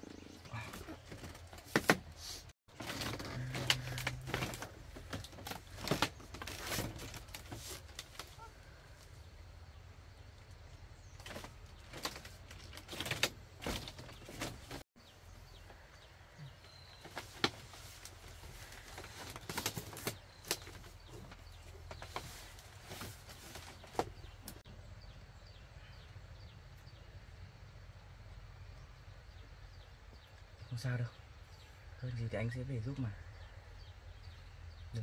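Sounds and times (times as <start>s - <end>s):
people shifting on bamboo floor: 0.1s - 9.0s, 11.0s - 14.8s, 15.6s - 24.7s
bamboo cradle knocking and creaking: 2.7s - 8.3s.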